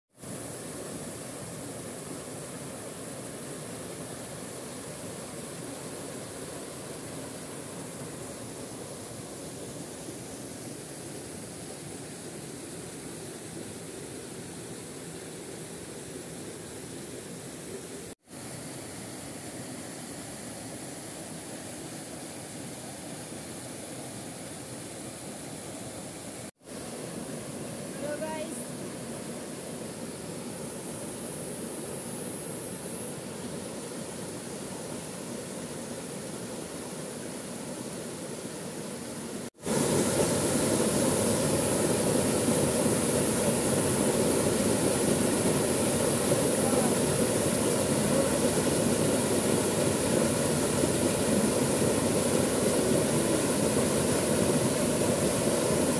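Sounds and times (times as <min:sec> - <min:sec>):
waterfall rushing into pool: 0:26.4 - 0:55.9.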